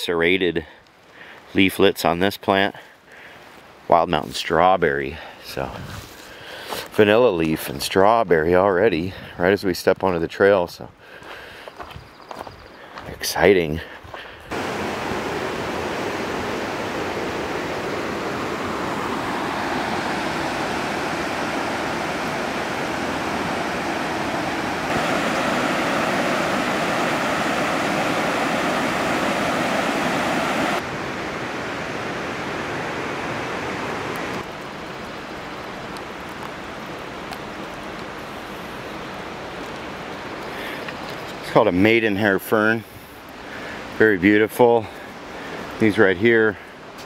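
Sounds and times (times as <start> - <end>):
river water rushing over rapids: 14.5 - 41.4.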